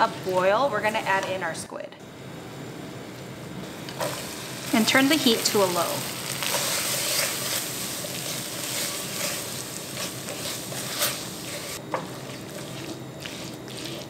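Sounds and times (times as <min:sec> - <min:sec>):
sauce sizzling in a pan: 0:03.9 - 0:14.0
spatula scraping a pan: 0:06.4 - 0:14.0.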